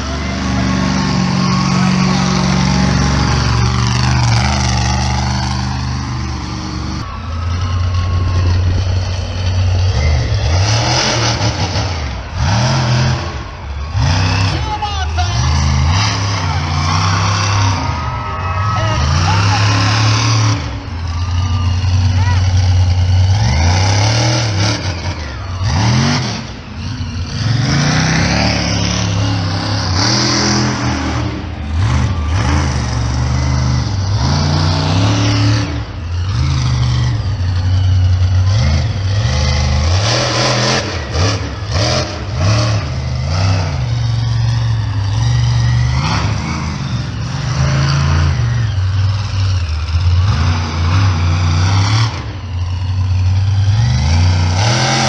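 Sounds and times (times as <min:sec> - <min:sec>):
truck engine revving hard: 0:00.0 - 0:55.0.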